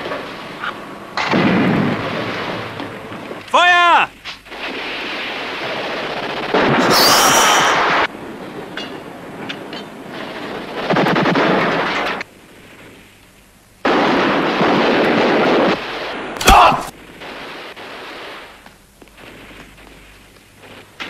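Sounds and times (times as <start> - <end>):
single gunshots: 16.4 - 16.9.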